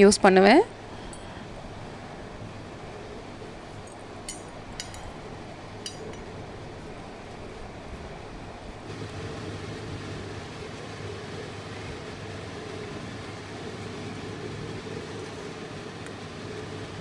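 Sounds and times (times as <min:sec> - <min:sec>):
background hiss and hum: 0:00.0 - 0:17.0.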